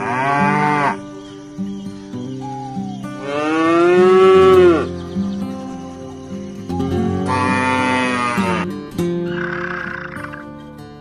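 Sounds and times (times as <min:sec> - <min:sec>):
cattle mooing: 0:00.0 - 0:01.0, 0:03.2 - 0:04.9, 0:07.0 - 0:08.7, 0:09.3 - 0:10.4.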